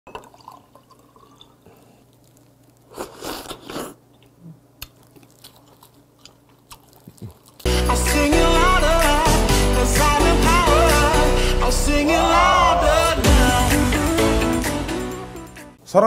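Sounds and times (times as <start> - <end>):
chewing and smacking: 1.0 - 7.7
person slurping oyster: 2.8 - 7.7
music: 7.7 - 15.8.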